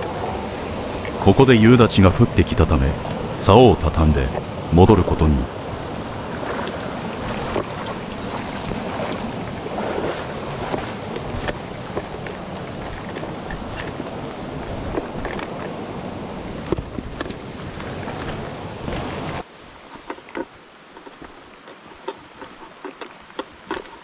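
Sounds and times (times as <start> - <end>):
mountain stream rushing: 0.0 - 24.0
footsteps on wet rocks: 6.4 - 14.0.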